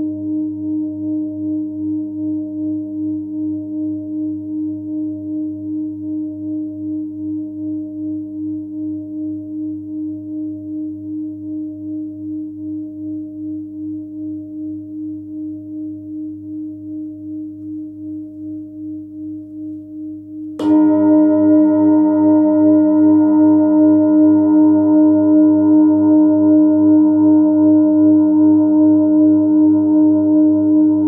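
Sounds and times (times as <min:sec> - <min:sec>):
singing bowl ringing: 0:00.0 - 0:31.0
mallet striking singing bowl: 0:20.6 - 0:23.0.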